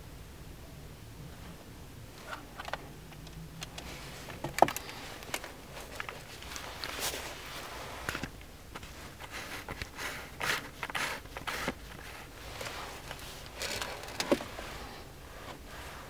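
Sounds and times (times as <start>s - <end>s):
camera handling rustles and knocks: 2.2s - 7.3s, 8.0s - 14.6s.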